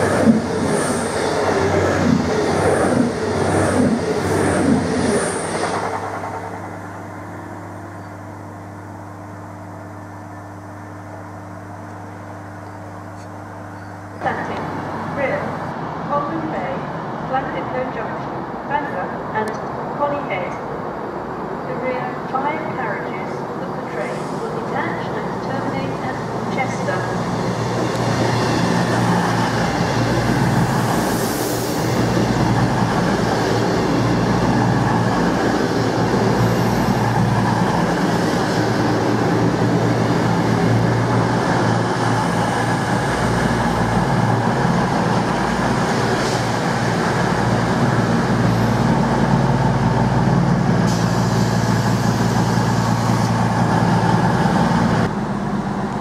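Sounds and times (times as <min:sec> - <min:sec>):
train wheels rumbling: 0:00.0 - 0:08.4, 0:23.0 - 0:56.0
diesel engines humming: 0:21.3 - 0:56.0.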